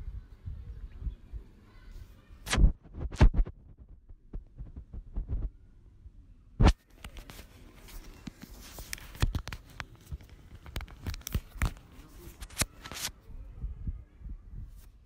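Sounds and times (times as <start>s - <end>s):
handling rustling and clicking: 7.0s - 13.2s.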